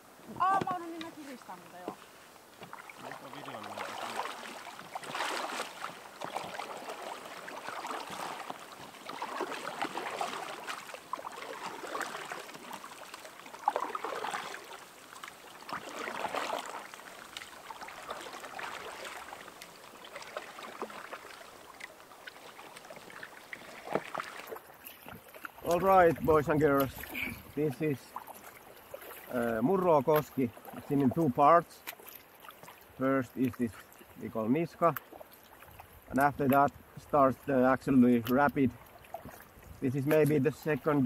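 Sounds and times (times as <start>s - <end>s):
paddles splashing in water: 0.0s - 41.0s.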